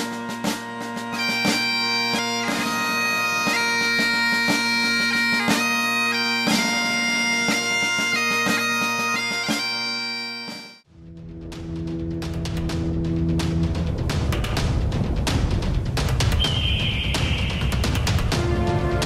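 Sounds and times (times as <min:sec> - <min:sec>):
bagpipes playing a tune: 0:00.0 - 0:10.9.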